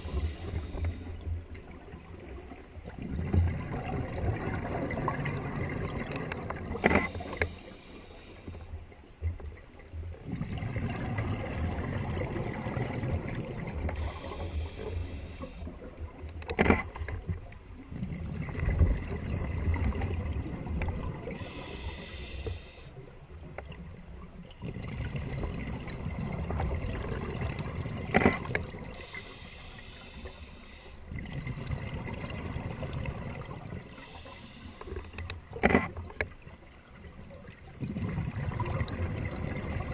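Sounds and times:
diver exhaling bubbles: 0:10.2 - 0:15.5, 0:24.6 - 0:29.2, 0:37.8 - 0:39.9.

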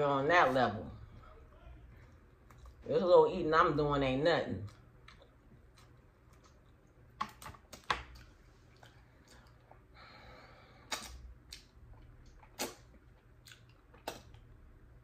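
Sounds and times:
lip smacks and mouth clicks: 0:10.9 - 0:14.5.

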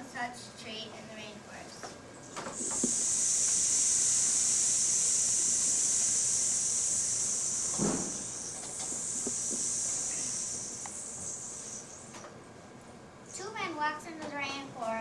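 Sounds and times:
high-pitched hiss: 0:02.3 - 0:12.3.

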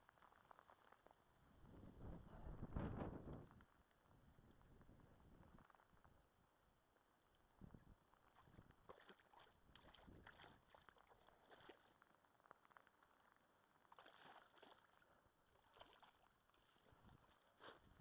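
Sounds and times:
water splashing and sloshing: 0:08.3 - 0:12.6, 0:13.8 - 0:18.0.

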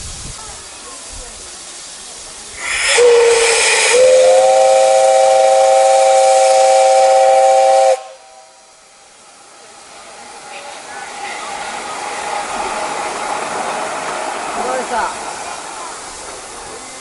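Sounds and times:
steam hissing: 0:00.0 - 0:17.0
steam locomotive whistle: 0:02.6 - 0:08.9.

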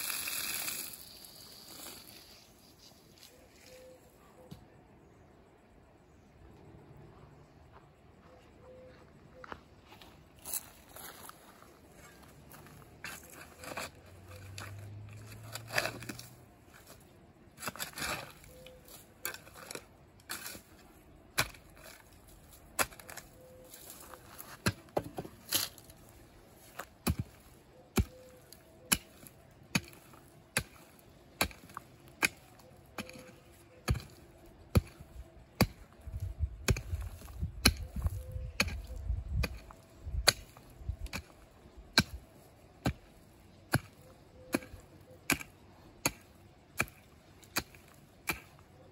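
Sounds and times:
mattock chopping into ground: 0:26.6 - 0:42.2, 0:42.8 - 0:48.6.

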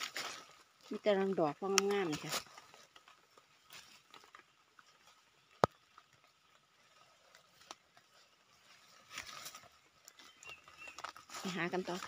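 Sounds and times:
rustling in dry leaves: 0:00.0 - 0:12.0.

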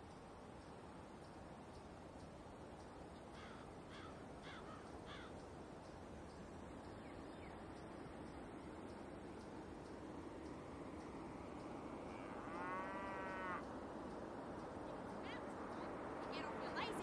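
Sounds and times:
low background hiss: 0:00.0 - 0:17.0
crow cawing: 0:03.3 - 0:05.4.

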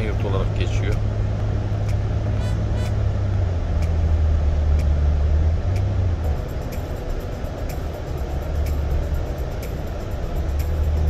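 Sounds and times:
car engine and road drone: 0:00.0 - 0:11.0
faint ticks: 0:01.8 - 0:03.0, 0:03.8 - 0:05.0, 0:05.7 - 0:11.0.

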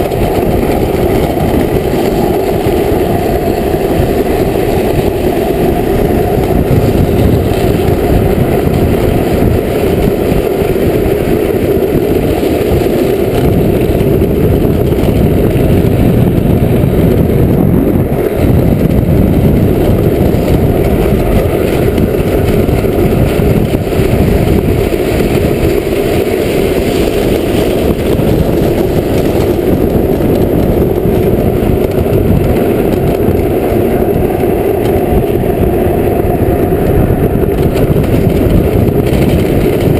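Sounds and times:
hard wheels rolling on road: 0:00.0 - 0:39.9
wind rumble on microphone: 0:00.0 - 0:39.9.

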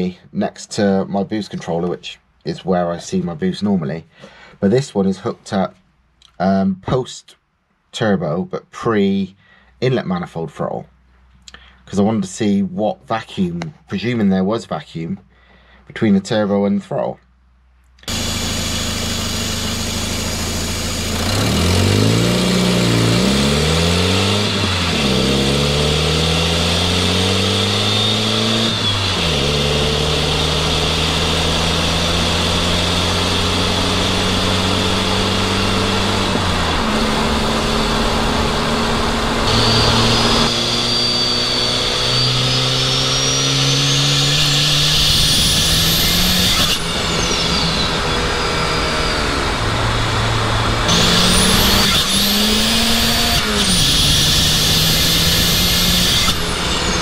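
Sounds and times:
car engine accelerating through gears: 0:18.0 - 0:57.0
turbocharger whistle: 0:18.0 - 0:57.0.

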